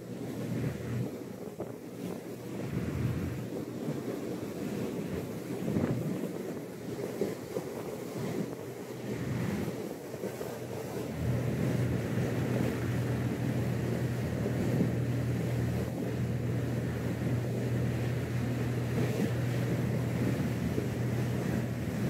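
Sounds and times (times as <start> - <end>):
boat engines humming: 0.0 - 22.0
wind: 0.0 - 22.0
water rushing past: 8.4 - 22.0.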